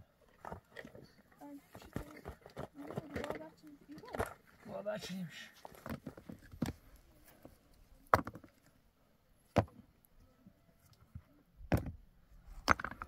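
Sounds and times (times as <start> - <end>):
rocks clacking together: 0.2 - 4.8, 5.6 - 7.0, 8.0 - 8.7, 10.9 - 13.0
stones settling clicks: 12.6 - 13.0.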